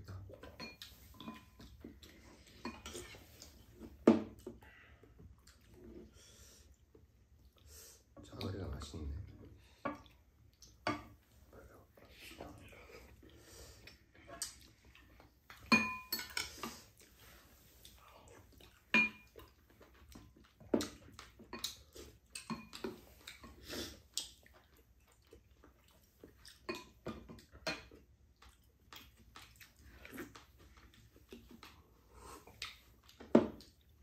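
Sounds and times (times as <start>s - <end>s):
chewing: 4.4s - 7.7s, 9.4s - 34.0s
utensils clinking against bowls: 15.6s - 16.8s.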